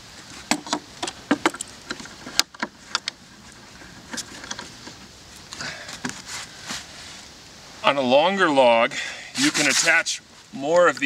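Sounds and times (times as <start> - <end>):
wood and metal clicks and knocks: 0.5 - 5.0.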